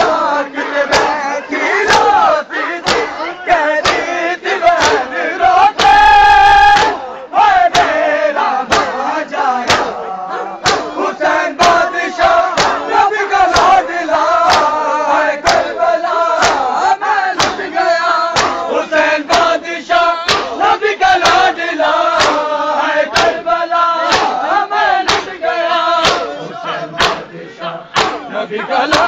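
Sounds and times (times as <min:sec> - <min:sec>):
men chanting in unison: 0:00.0 - 0:29.0.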